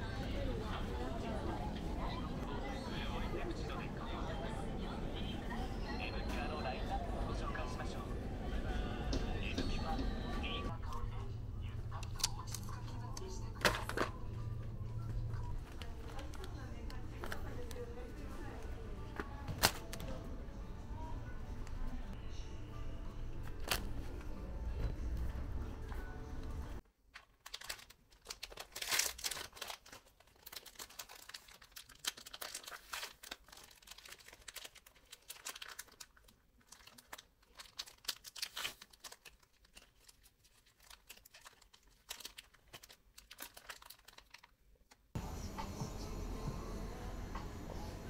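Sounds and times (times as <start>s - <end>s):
crinkling and crackling: 11.9s - 20.2s, 27.1s - 45.1s.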